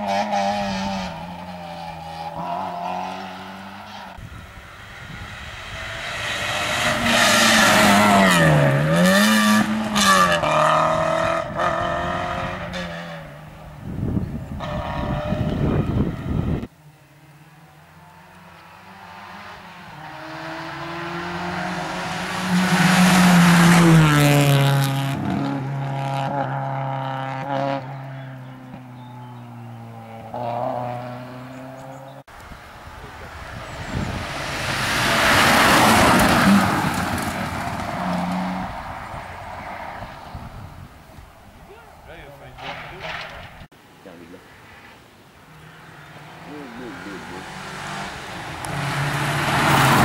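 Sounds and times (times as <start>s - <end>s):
rally cars passing at full throttle: 0.0s - 50.0s.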